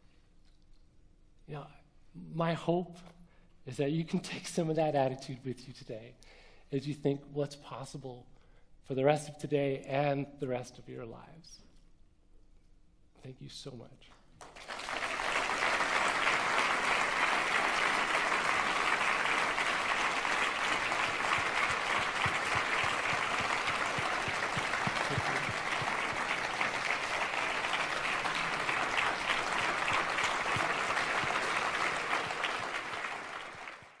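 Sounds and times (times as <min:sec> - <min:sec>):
audience applauding: 0:14.4 - 0:34.0.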